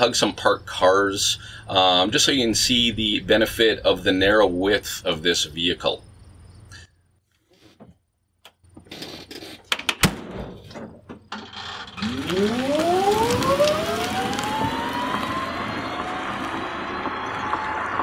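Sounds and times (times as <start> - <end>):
electric motor whine: 11.9 - 18.0.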